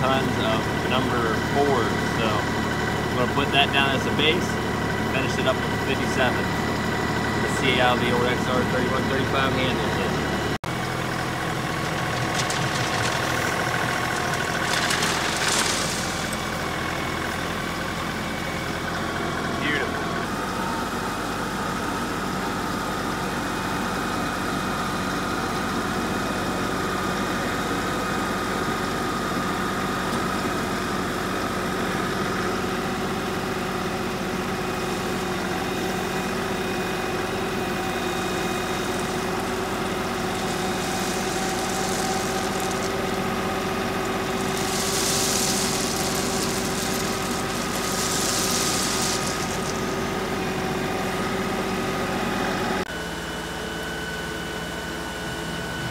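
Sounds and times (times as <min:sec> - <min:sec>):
tractor diesel engine running: 0:00.0 - 0:55.9.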